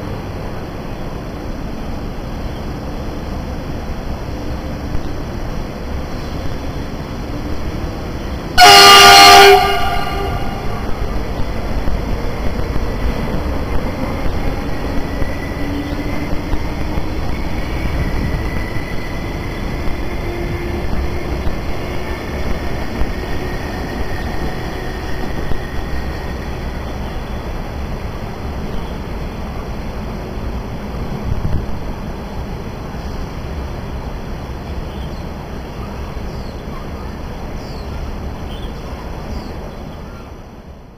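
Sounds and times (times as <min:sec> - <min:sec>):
passenger train rumbling: 0:00.0 - 0:40.9
locomotive horn blast: 0:08.6 - 0:11.0.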